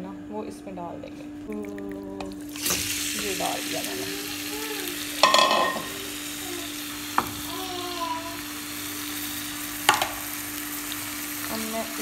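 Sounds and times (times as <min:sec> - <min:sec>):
steady hum: 0:00.0 - 0:12.0
chicken sizzling in hot oil: 0:02.4 - 0:12.0
spoon clattering against pan: 0:05.2 - 0:05.9.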